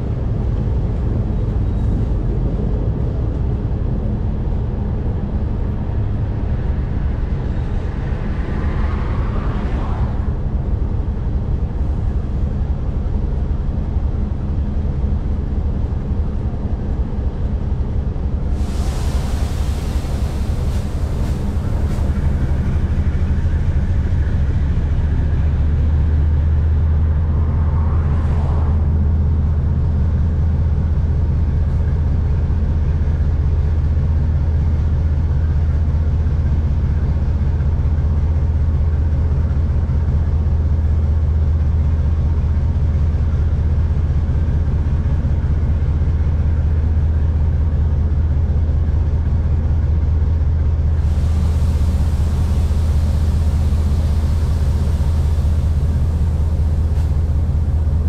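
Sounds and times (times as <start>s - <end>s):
locomotive engine drone: 0.0s - 58.0s.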